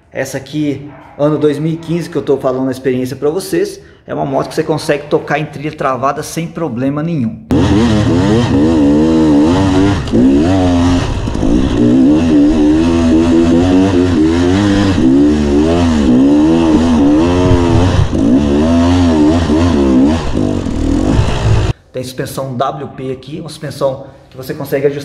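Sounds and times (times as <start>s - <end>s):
dirt bike engine revving: 7.5s - 21.8s.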